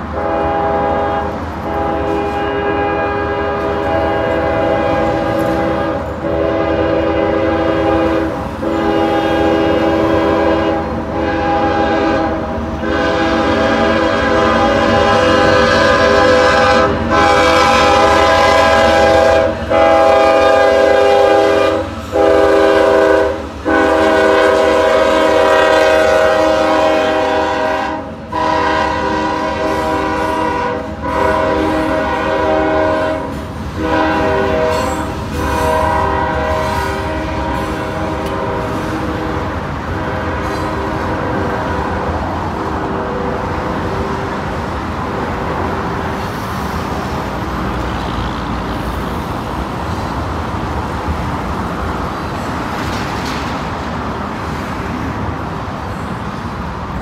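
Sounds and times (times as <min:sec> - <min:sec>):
locomotive air horn blasts: 0:00.0 - 0:42.2
road traffic: 0:00.0 - 0:57.0
rumble of passing train: 0:00.0 - 0:57.0.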